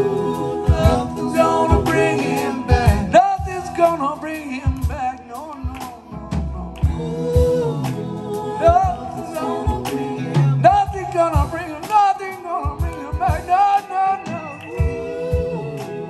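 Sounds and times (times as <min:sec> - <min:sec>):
live rock band playing: 0:00.0 - 0:16.0
person singing: 0:00.0 - 0:16.0
drum hits: 0:00.6 - 0:04.0, 0:08.7 - 0:13.6.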